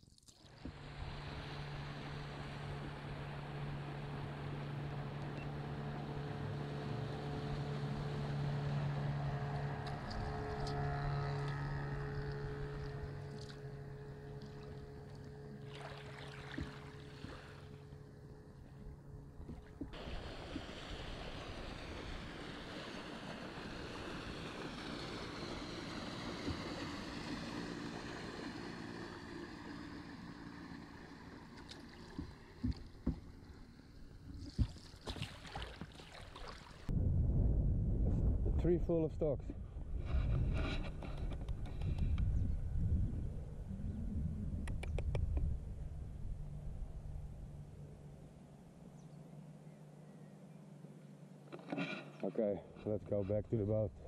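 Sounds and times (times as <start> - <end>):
soft hiss of water and wind: 0.0 - 36.9
motor boat engine droning: 0.4 - 36.9, 39.7 - 54.0.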